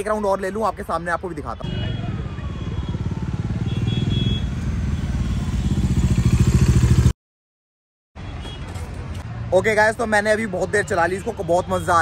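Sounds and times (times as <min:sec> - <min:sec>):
motorcycle engine running: 0:01.9 - 0:07.1.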